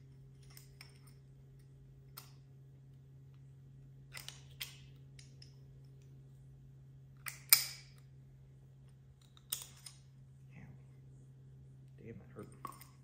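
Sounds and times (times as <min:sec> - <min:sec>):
low hum: 0:00.0 - 0:13.0
tools clicking and clinking: 0:04.1 - 0:05.6, 0:07.2 - 0:08.0, 0:12.4 - 0:13.0.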